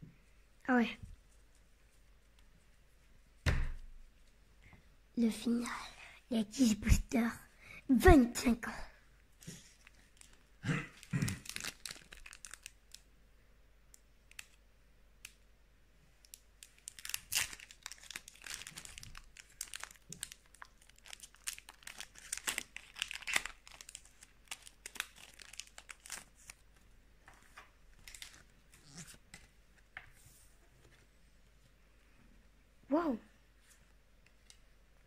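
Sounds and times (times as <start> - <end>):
foil wrappers crinkling: 9.6 - 13.0, 16.3 - 26.6, 28.0 - 29.2
pack being torn open: 11.0 - 13.0, 16.7 - 26.6.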